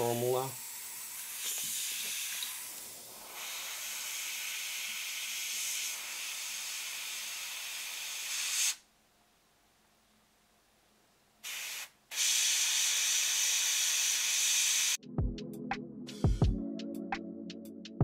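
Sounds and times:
airbrush hissing: 0:00.0 - 0:08.8, 0:11.4 - 0:15.0.

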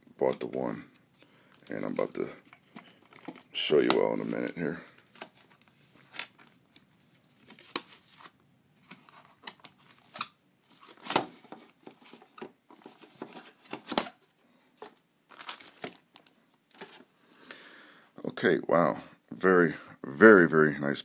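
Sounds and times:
cardboard rustling and scraping: 0:07.3 - 0:14.2, 0:16.7 - 0:17.1.

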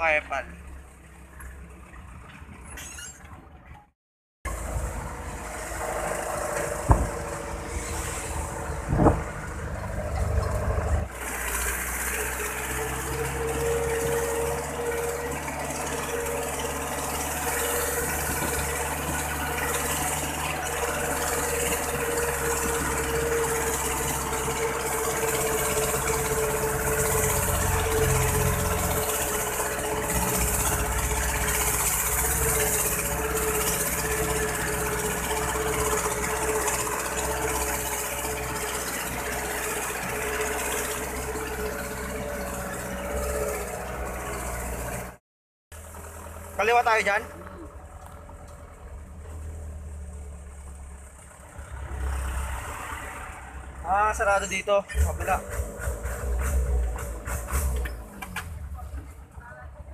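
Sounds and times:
road and wind noise: 0:00.0 - 0:59.9
truck engine running: 0:00.0 - 0:59.9
sharp knocks: 0:06.8 - 0:07.3.

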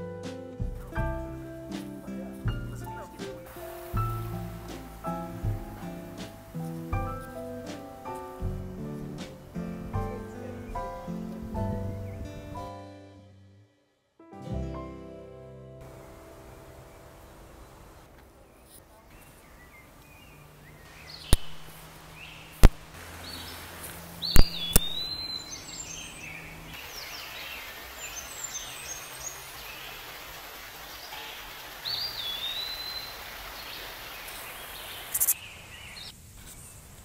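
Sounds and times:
small birds chirping: 0:16.0 - 0:36.9
whistled bird calls: 0:24.2 - 0:29.5, 0:31.1 - 0:36.1.

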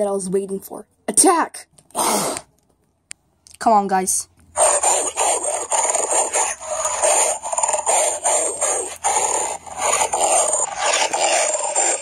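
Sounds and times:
animal growling and snarling: 0:01.9 - 0:02.4, 0:04.6 - 0:12.0.

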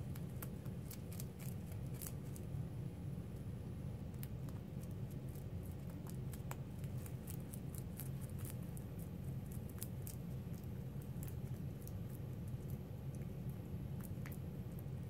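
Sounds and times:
rabbits crunching dried leaves: 0:00.0 - 0:02.6, 0:04.2 - 0:12.9
steady low hum: 0:00.0 - 0:15.0.

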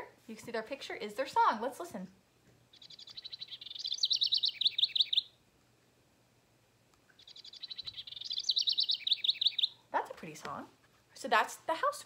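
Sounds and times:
recorded bird song through small speaker: 0:02.7 - 0:05.4, 0:07.2 - 0:09.8.

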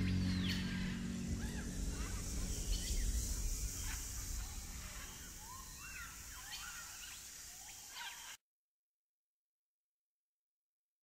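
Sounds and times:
low rumble: 0:00.0 - 0:07.2
birds calling: 0:00.0 - 0:08.4
steady high hiss: 0:00.0 - 0:08.4.

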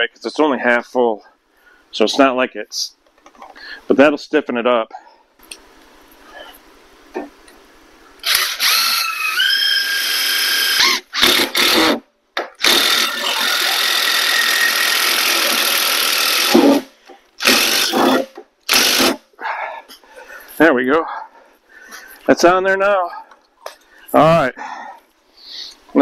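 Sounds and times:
power drill driving screws into metal: 0:08.2 - 0:12.0, 0:12.6 - 0:19.2.

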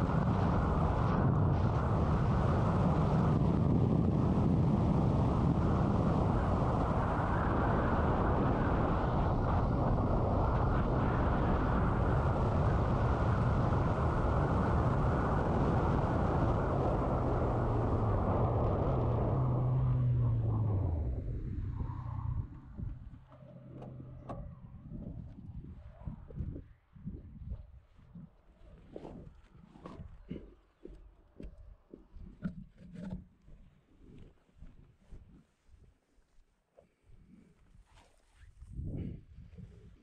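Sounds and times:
wind rush: 0:00.0 - 0:30.4, 0:38.5 - 0:40.0
motorcycle engine hum: 0:00.0 - 0:35.0.

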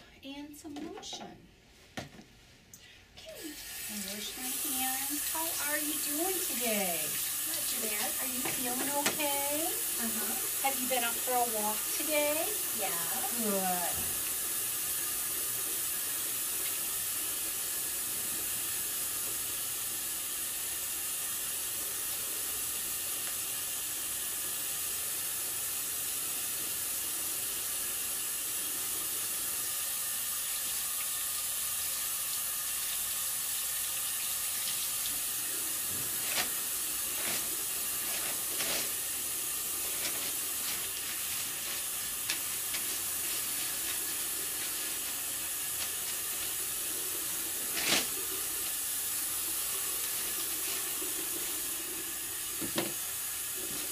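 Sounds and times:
tap water running into sink: 0:03.6 - 0:53.9
paper towels crackling: 0:35.9 - 0:48.7.

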